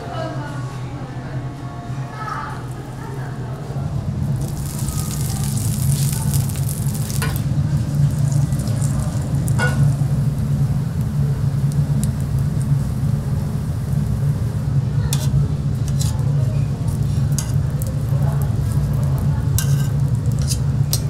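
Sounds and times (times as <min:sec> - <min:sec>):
steady low hum: 0:00.0 - 0:21.0
food sizzling in a pan: 0:04.3 - 0:21.0.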